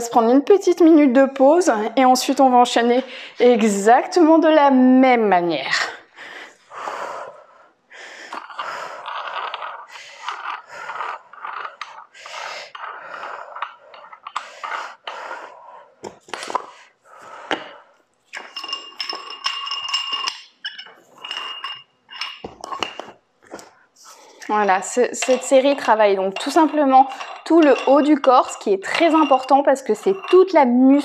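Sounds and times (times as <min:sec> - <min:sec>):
collar unscrewing: 0:08.3 - 0:15.0
metallic ringing scrape: 0:18.4 - 0:23.0, 0:24.8 - 0:31.0
weight plates clinking on metal bar: 0:18.4 - 0:23.1, 0:25.0 - 0:30.7.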